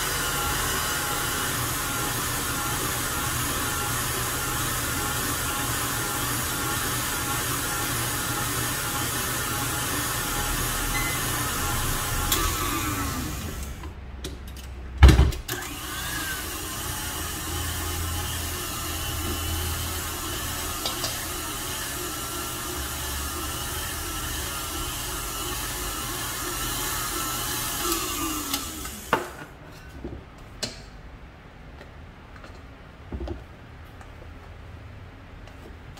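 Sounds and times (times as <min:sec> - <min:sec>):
stand mixer whipping: 0:00.0 - 0:13.8, 0:15.6 - 0:29.2.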